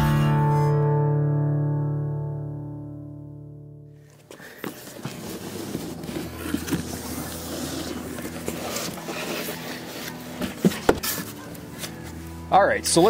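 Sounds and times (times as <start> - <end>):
cardboard scraping and rubbing: 4.3 - 12.3.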